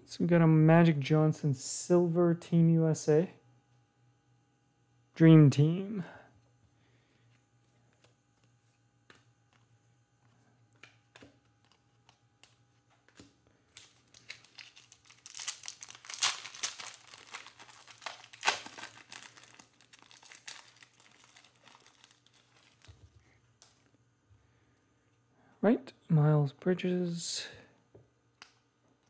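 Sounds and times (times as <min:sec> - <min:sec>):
foil pack tearing and crinkling: 0:13.7 - 0:23.1.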